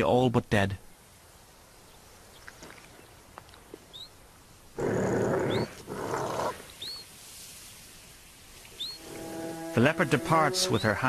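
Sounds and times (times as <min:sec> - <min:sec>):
bird chirping: 0:03.8 - 0:04.2, 0:05.3 - 0:05.8, 0:06.7 - 0:07.1, 0:08.6 - 0:09.7
leopard growling: 0:04.8 - 0:06.6.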